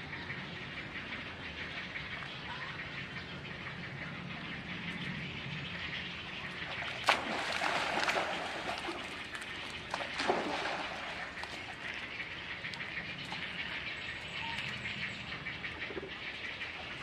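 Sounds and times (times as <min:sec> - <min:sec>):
churning water: 0:06.0 - 0:17.0
splash into pond: 0:06.7 - 0:12.0.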